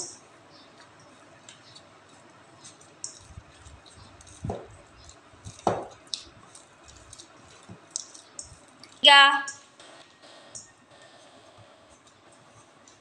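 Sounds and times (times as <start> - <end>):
dough squishing: 0.0 - 9.1.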